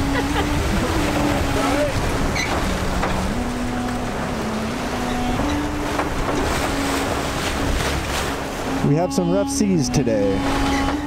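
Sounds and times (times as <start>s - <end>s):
wind buffeting microphone: 0.0s - 8.8s
water rushing past hull: 0.0s - 11.0s.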